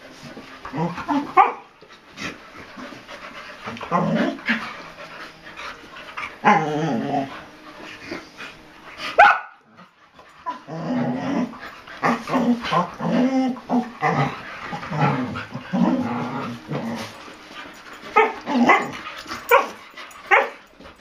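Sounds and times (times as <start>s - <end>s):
dogs growling and barking: 0.1s - 21.0s
dog yipping: 9.2s - 9.6s.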